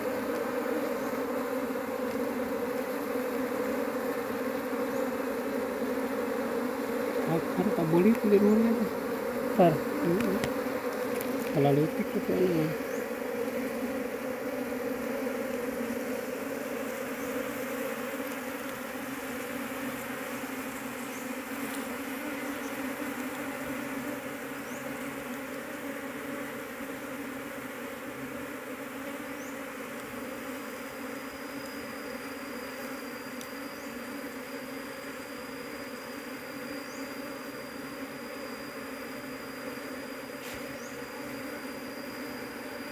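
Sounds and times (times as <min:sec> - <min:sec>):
honey bees buzzing: 0:00.0 - 0:42.9.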